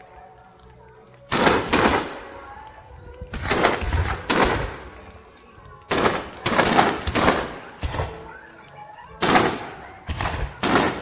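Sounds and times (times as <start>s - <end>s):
fireworks bursting with echo: 1.3s - 2.7s, 3.3s - 5.2s, 5.8s - 8.5s, 9.2s - 11.0s.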